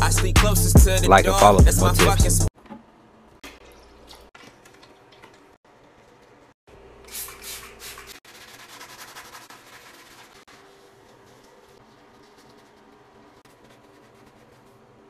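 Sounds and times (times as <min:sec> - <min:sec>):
scrubbing inside toilet bowl: 0:07.2 - 0:14.6.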